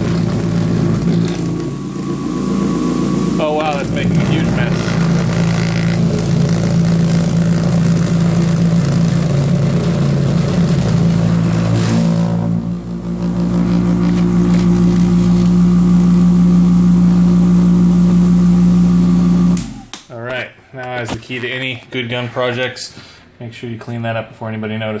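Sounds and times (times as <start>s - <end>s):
vibratory tumbler humming: 0.0s - 19.9s.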